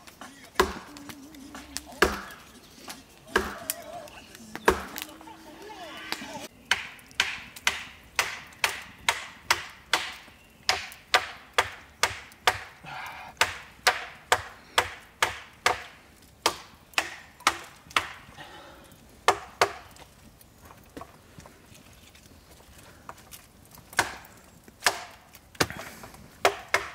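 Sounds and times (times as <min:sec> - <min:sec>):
machete chopping dry wood: 0:00.0 - 0:02.4, 0:03.3 - 0:03.8, 0:04.6 - 0:05.1, 0:06.6 - 0:12.8, 0:13.4 - 0:18.3, 0:19.3 - 0:20.0, 0:23.8 - 0:26.9.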